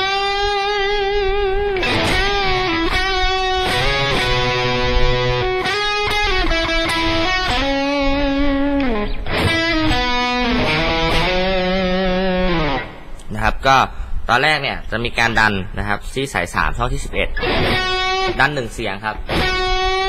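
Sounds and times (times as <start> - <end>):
electric guitar lead riff: 0.0 - 13.3, 17.3 - 20.0.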